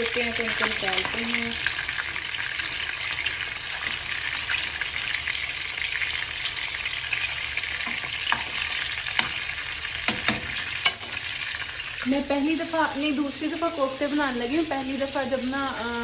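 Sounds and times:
meat sizzling in hot oil: 0:00.0 - 0:16.0
metal spoon clicking against pan: 0:10.1 - 0:11.0.

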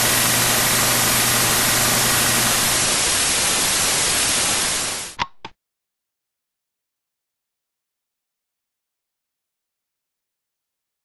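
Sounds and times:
tv static hiss: 0:00.0 - 0:05.2.

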